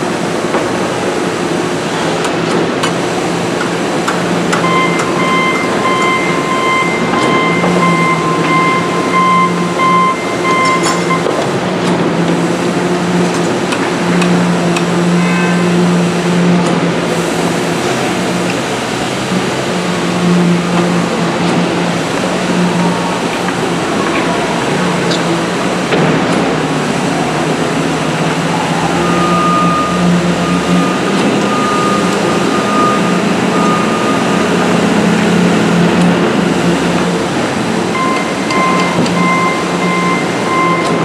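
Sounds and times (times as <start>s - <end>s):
concrete pump and vibrators droning: 0.0s - 41.0s
rapid electronic beeping: 4.6s - 11.4s, 28.2s - 35.2s, 37.9s - 41.0s.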